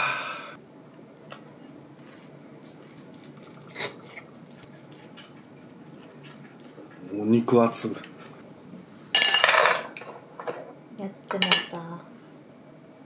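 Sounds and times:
faint tableware clink: 9.2 - 10.7.

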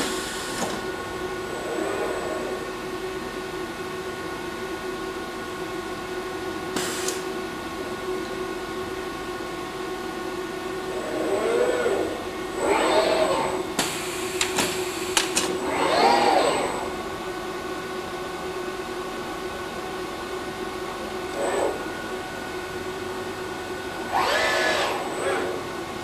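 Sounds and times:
machinery hum: 0.0 - 26.0
robot arm servo motors whining: 1.4 - 2.8, 10.8 - 13.8, 15.4 - 17.1, 21.3 - 22.1, 24.0 - 26.0.

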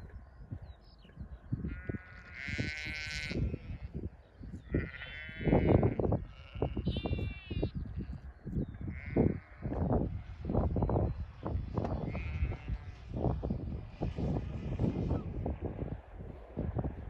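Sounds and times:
low gusting rumble: 0.0 - 17.0
sheep bleating: 1.6 - 7.8, 8.9 - 9.8, 12.0 - 12.9.

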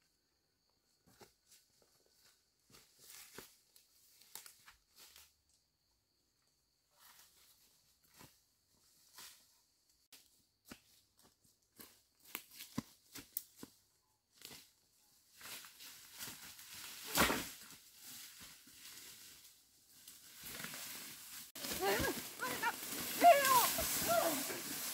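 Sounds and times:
brushing through ferns: 15.3 - 24.9
footsteps crunching through dry leaves: 15.3 - 24.9.

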